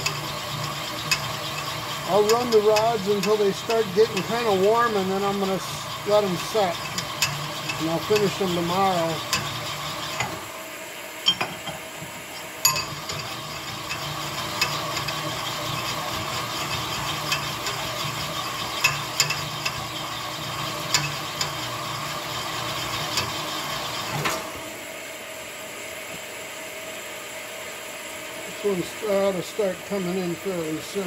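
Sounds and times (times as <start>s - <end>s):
metal clinks: 12.6s - 13.3s.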